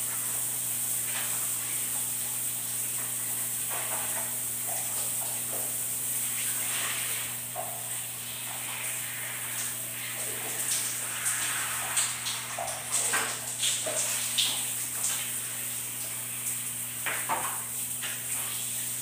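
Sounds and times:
shower spraying on tiled floor: 0.0s - 19.0s.

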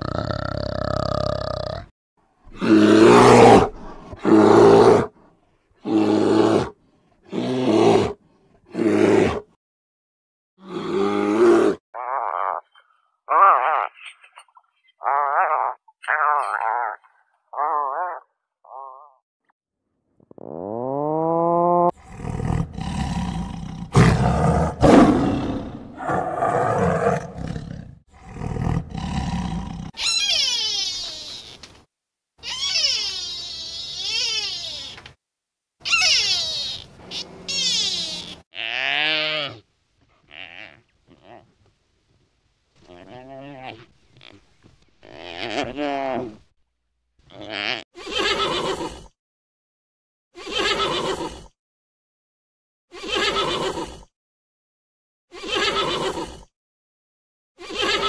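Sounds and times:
large animal roaring: 2.5s - 5.1s, 10.6s - 11.8s, 21.2s - 29.9s
rising pitched animal call: 32.4s - 35.0s, 35.8s - 39.5s.

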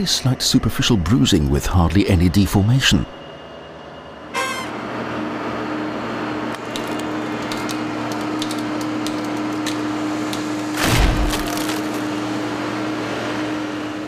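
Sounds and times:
road roller vibrating: 0.0s - 14.0s
plastic cracking and creaking: 6.6s - 10.5s.

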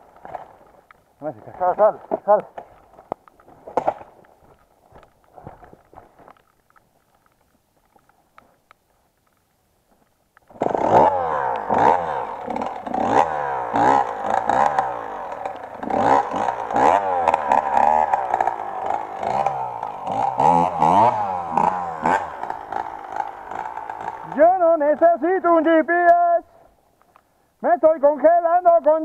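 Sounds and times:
motorcycle engine revving: 10.5s - 25.4s.

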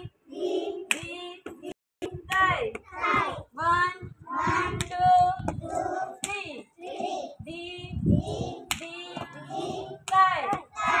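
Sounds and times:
girls singing together: 4.2s - 11.0s.

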